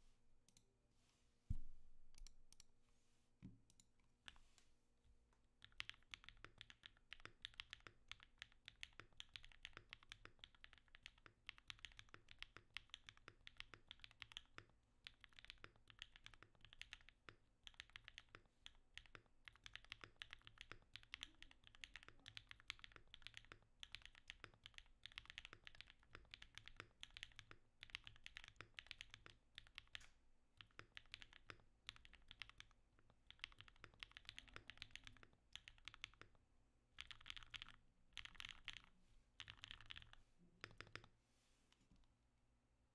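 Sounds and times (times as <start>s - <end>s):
fast typing on mechanical keyboard: 5.6s - 30.0s, 30.6s - 36.4s, 37.0s - 41.1s.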